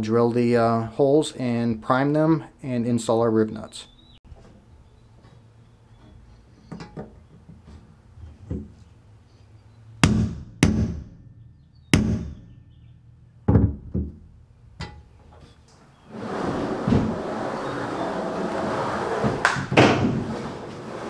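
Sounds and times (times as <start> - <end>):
hammer striking metal punch: 10.0 - 12.6.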